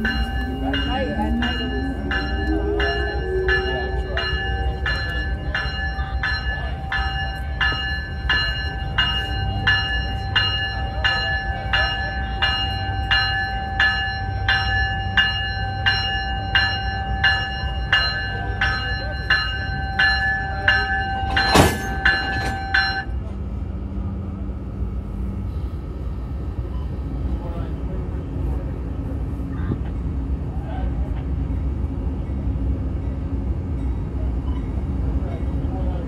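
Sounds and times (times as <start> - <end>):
locomotive bell ringing: 0.0 - 23.4, 31.0 - 36.0
locomotive rumble: 0.0 - 36.0.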